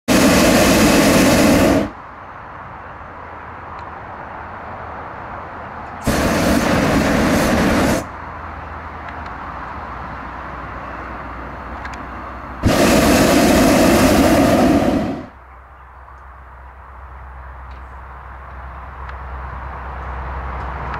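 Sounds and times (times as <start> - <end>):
propane burner blasts: 0.1 - 15.4.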